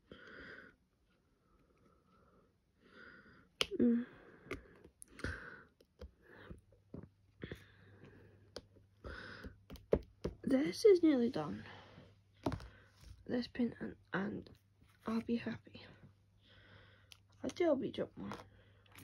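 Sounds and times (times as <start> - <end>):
soft breaths: 0.0 - 9.7, 10.8 - 13.3, 15.7 - 17.3.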